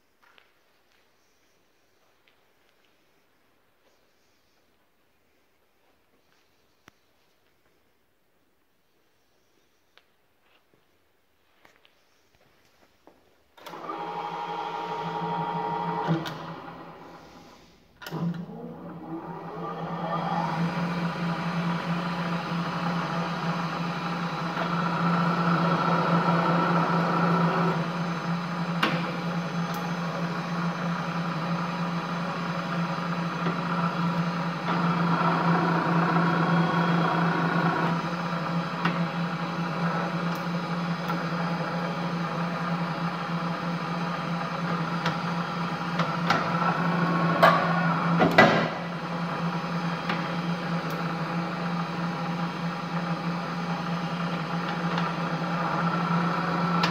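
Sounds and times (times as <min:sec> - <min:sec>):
pillar drill motor humming: 0:13.6 - 0:56.9.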